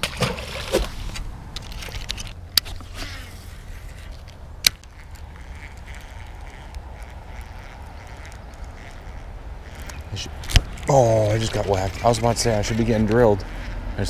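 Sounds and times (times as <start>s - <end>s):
fishing reel clicks: 3.9s - 13.8s.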